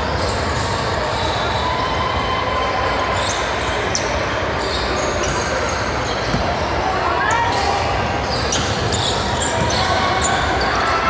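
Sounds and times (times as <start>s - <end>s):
basketball bouncing on court: 6.2s - 6.6s, 8.2s - 10.4s
high-pitched shoe squeaks: 8.3s - 10.9s.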